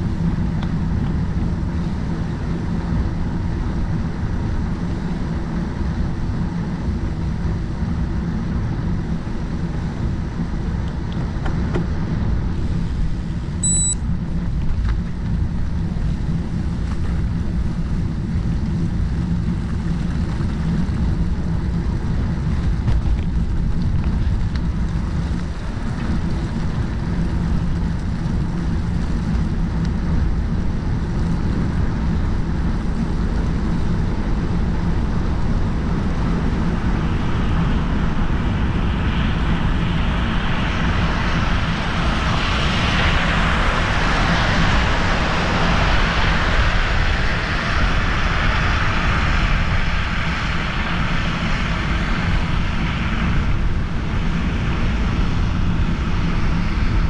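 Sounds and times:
wind on microphone: 0:00.0 - 0:57.0
tyres rumbling on road: 0:14.3 - 0:54.4.

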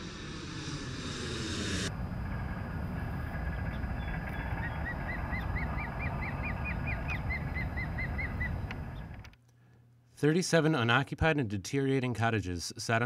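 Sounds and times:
low rumble of wind or surf: 0:00.0 - 0:09.3
bird chirping rapidly: 0:03.3 - 0:09.1.

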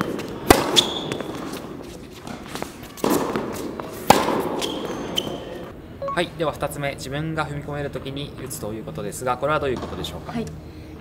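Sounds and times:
tennis ball hit by racket: 0:00.1 - 0:01.6, 0:02.3 - 0:04.9.

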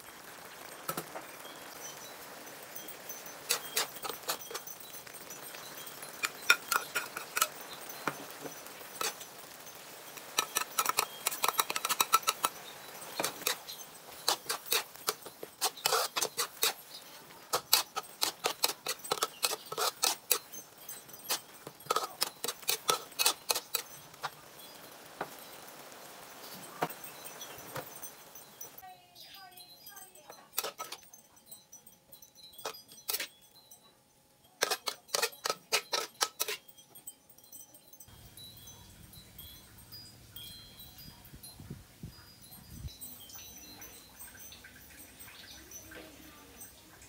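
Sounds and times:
simmering sauce hiss: 0:00.0 - 0:28.9
metal utensils scraping a wok: 0:02.8 - 0:09.4, 0:10.0 - 0:25.4, 0:30.3 - 0:31.1, 0:32.5 - 0:33.4, 0:34.6 - 0:37.0.

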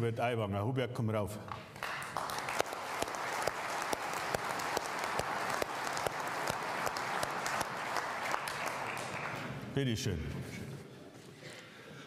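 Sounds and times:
close evenly paced claps: 0:01.5 - 0:09.7
audience applauding: 0:01.8 - 0:09.7.

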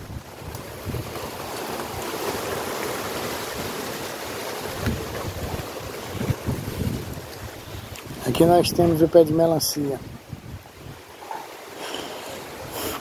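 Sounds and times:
wind buffeting microphone: 0:00.0 - 0:02.4, 0:03.2 - 0:11.2.

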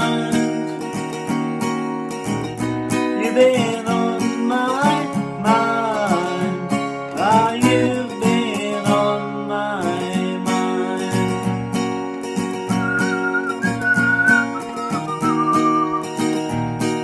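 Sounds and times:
person singing wordless melody: 0:00.0 - 0:00.6, 0:03.0 - 0:11.4
acoustic guitar strumming: 0:00.0 - 0:17.0.

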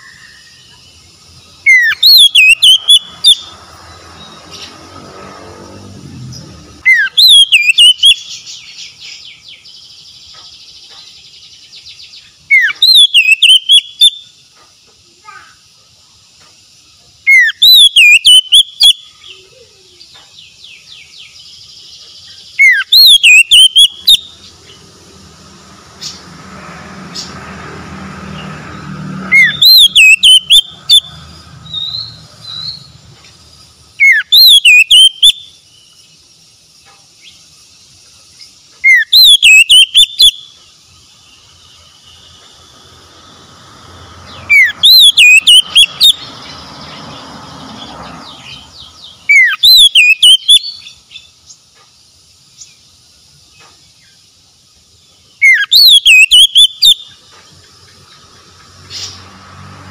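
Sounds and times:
bird singing whistled phrases: 0:01.6 - 0:03.5, 0:06.8 - 0:09.6, 0:11.8 - 0:14.3, 0:17.3 - 0:20.1, 0:22.3 - 0:24.5, 0:29.3 - 0:31.1, 0:34.0 - 0:35.6, 0:38.8 - 0:40.6, 0:44.5 - 0:46.2, 0:49.3 - 0:51.0, 0:55.4 - 0:57.2.

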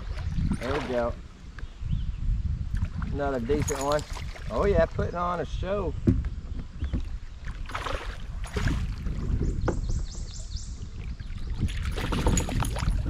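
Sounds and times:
river water sloshing: 0:00.0 - 0:01.4, 0:02.7 - 0:05.1, 0:07.0 - 0:09.8, 0:10.8 - 0:13.0
wind on the microphone: 0:00.0 - 0:13.0
fish thrashing and splashing: 0:07.5 - 0:09.1, 0:11.6 - 0:13.0.

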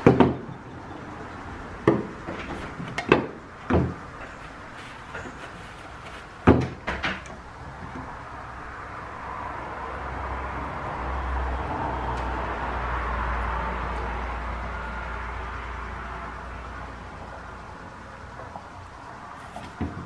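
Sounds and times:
steady rumbling noise: 0:00.0 - 0:20.0
knocks on wooden workbench: 0:03.0 - 0:04.0, 0:06.4 - 0:07.2.

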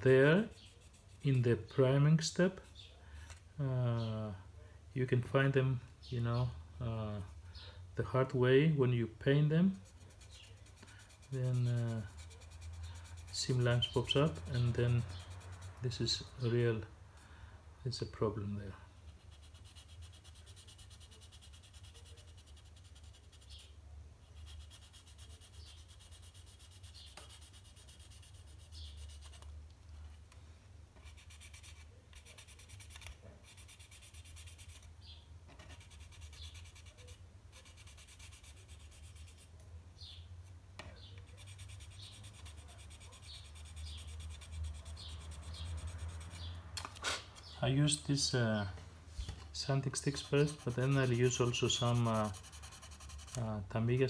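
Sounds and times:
sanding stick rubbing plastic: 0:09.8 - 0:16.3, 0:19.2 - 0:23.7, 0:24.3 - 0:29.5, 0:31.0 - 0:34.9, 0:35.7 - 0:39.5, 0:41.3 - 0:46.6, 0:49.6 - 0:54.0.

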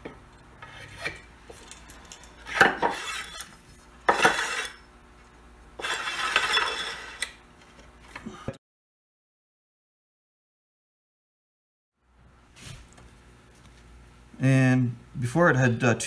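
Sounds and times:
metal rod clinking and scraping: 0:00.6 - 0:04.9, 0:05.8 - 0:07.3.

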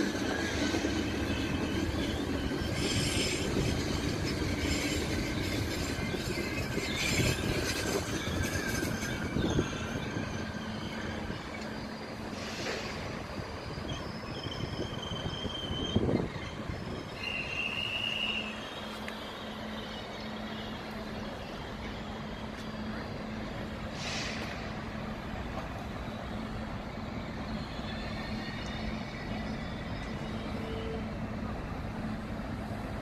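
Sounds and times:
electric train hum: 0:00.0 - 0:33.0
train wheels squealing: 0:00.0 - 0:33.0
air hiss: 0:12.2 - 0:13.6, 0:23.8 - 0:24.8.

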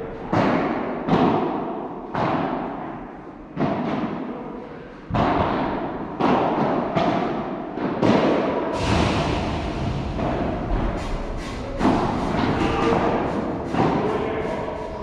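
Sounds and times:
padel rackets striking ball: 0:00.3 - 0:02.7, 0:05.1 - 0:08.6, 0:11.8 - 0:14.1.

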